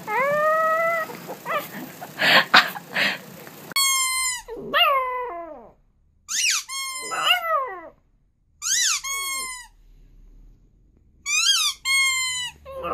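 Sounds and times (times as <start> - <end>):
puppy howling: 0.0 - 8.0, 11.3 - 12.9.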